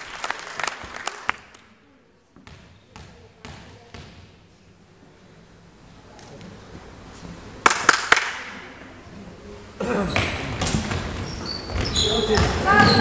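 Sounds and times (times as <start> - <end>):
voices of players and spectators: 8.4 - 13.0.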